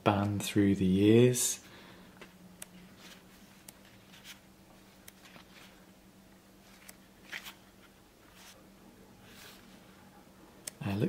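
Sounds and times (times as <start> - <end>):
faint steady hum: 0.0 - 11.0
paper pages turning: 3.0 - 4.4, 5.0 - 5.8, 6.6 - 8.6.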